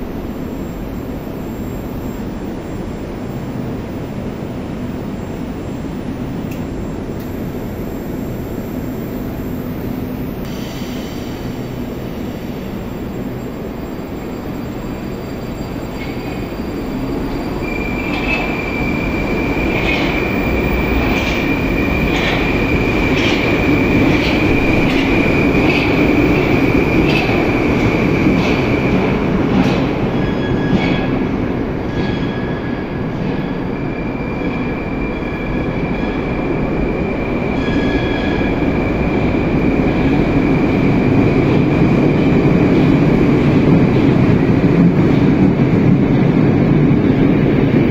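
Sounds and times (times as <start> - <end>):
train rumble: 0.0 - 47.9
high wheel squeal: 13.8 - 28.0, 30.0 - 31.3, 31.9 - 40.1.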